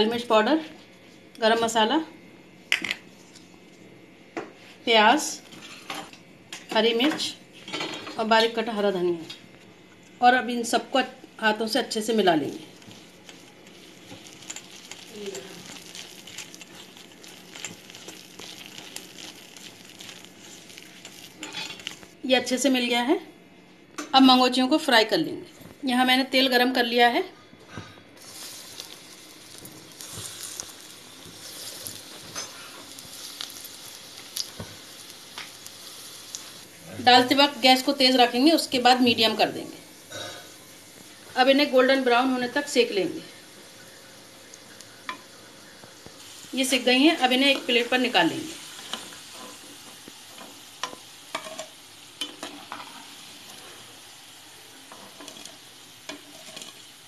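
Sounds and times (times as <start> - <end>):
dumplings sizzling in hot oil: 11.4 - 22.2, 28.2 - 57.0
oil popping and crackling: 12.6 - 22.2, 28.2 - 36.8, 43.4 - 57.0
metal spoon scraping pan: 54.9 - 56.9.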